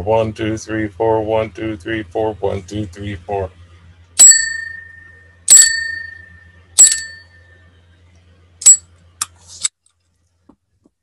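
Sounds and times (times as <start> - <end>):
low electrical hum: 0.0 - 11.0
sharp metallic taps ringing: 4.2 - 7.4.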